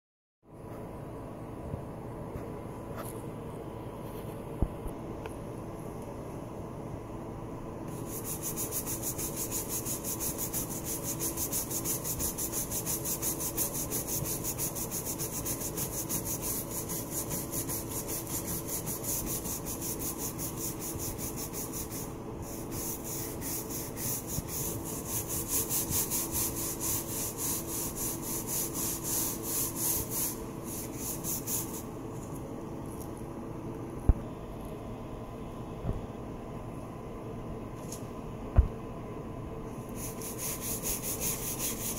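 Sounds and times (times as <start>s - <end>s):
brush scrubbing tile grout: 7.9s - 32.4s, 39.9s - 41.9s.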